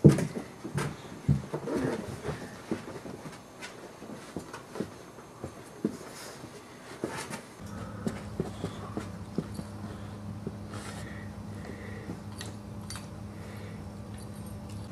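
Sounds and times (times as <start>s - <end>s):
dogs scuffling and playing: 0.0s - 14.9s
low hum: 7.6s - 14.9s.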